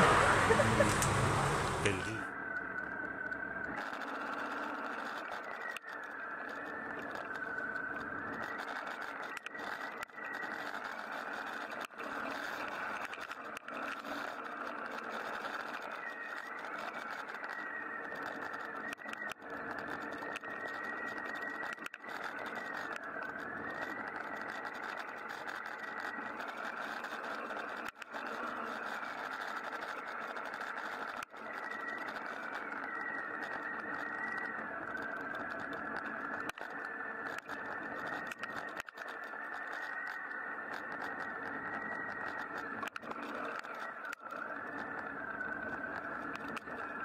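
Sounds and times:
motorcycle engine running: 0:00.0 - 0:02.0
high wavering whine: 0:00.0 - 0:47.0
road noise: 0:00.0 - 0:47.0.

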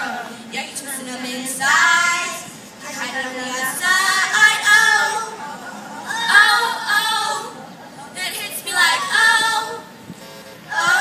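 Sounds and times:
children's choir singing: 0:01.0 - 0:02.5, 0:03.1 - 0:05.5, 0:10.7 - 0:11.0.

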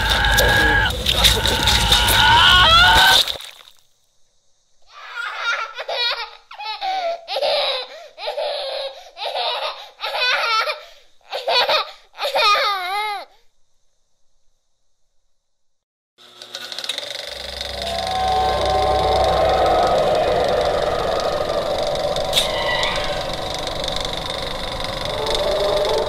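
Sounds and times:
person laughing: 0:01.1 - 0:02.0.

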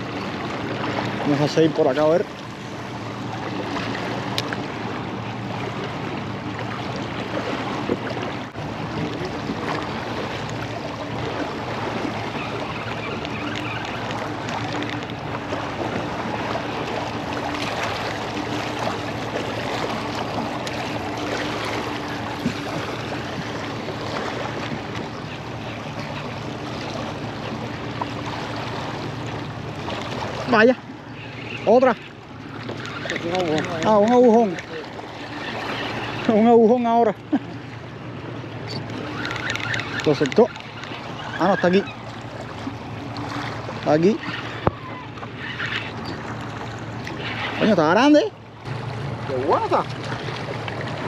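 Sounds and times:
water lapping against boat: 0:00.0 - 0:51.0.

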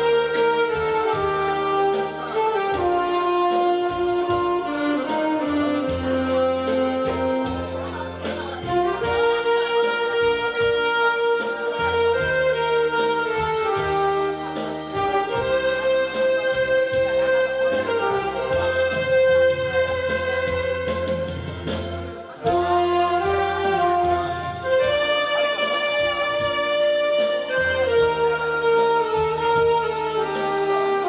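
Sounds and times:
backing track drums and bass: 0:00.0 - 0:31.0
saxophones playing slow melody: 0:00.0 - 0:31.0.

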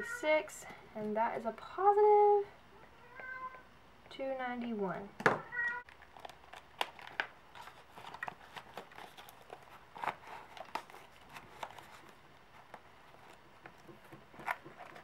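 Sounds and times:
paper rustling: 0:05.9 - 0:15.0.

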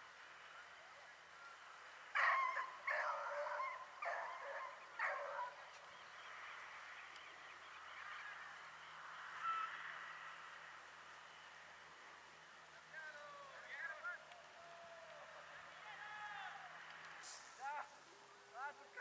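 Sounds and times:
hounds baying: 0:02.1 - 0:05.7.

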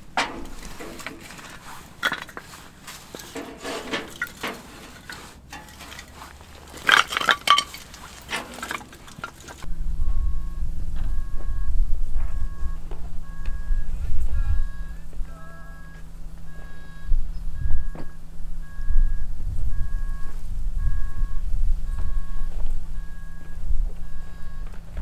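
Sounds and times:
firewood pieces clattering: 0:00.0 - 0:09.8
wind buffeting microphone: 0:09.6 - 0:25.0.

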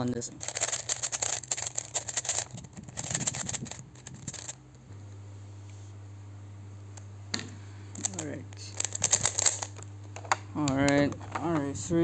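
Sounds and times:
low steady hum: 0:00.0 - 0:12.0
speed cube clicking turns: 0:00.4 - 0:04.6, 0:08.8 - 0:09.7.

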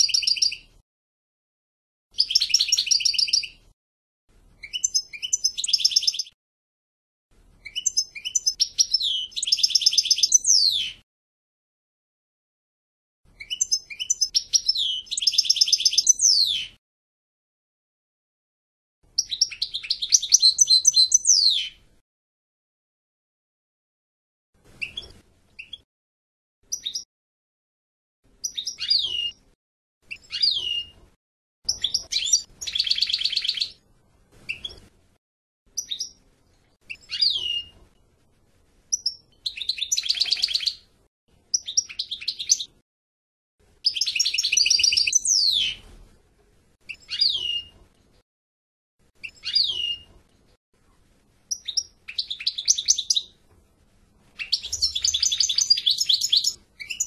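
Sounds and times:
goldfinch singing: 0:00.0 - 0:00.6, 0:02.2 - 0:03.6, 0:04.6 - 0:06.4, 0:07.6 - 0:11.0, 0:13.4 - 0:16.8, 0:19.2 - 0:21.8, 0:28.4 - 0:29.4, 0:30.1 - 0:31.0, 0:31.7 - 0:33.8, 0:35.8 - 0:36.2, 0:36.9 - 0:37.7, 0:38.9 - 0:40.8, 0:41.5 - 0:42.7, 0:43.8 - 0:45.8, 0:46.9 - 0:47.7, 0:49.2 - 0:50.1, 0:51.5 - 0:53.4, 0:54.4 - 0:57.0.

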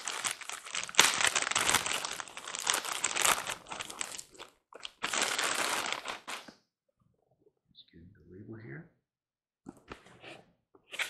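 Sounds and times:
plastic bag crinkling: 0:00.0 - 0:06.5.

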